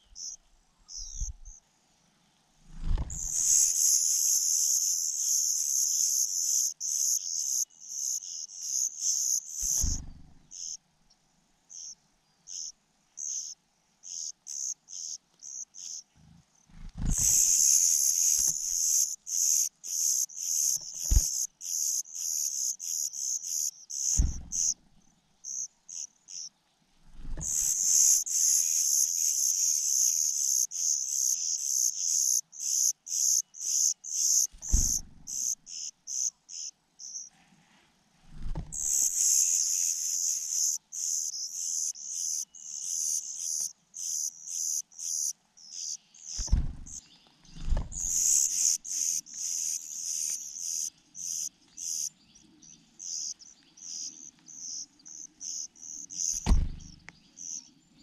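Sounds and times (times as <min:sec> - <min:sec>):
nestlings cheeping: 0:27.4 - 0:37.3, 0:47.9 - 0:52.1
dull thumps: 0:38.3 - 0:38.8, 0:46.4 - 0:46.9, 0:56.4 - 0:56.9.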